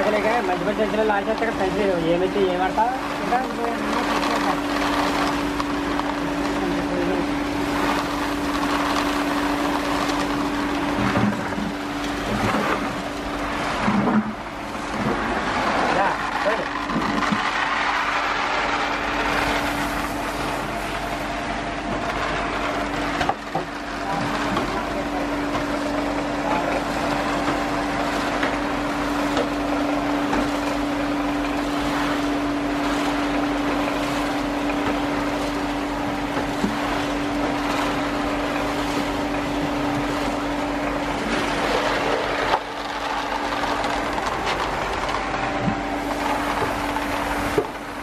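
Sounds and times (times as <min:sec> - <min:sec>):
rotating drum machine running: 0:00.0 - 0:48.0
dried peas tumbling: 0:02.7 - 0:11.0, 0:40.4 - 0:47.6.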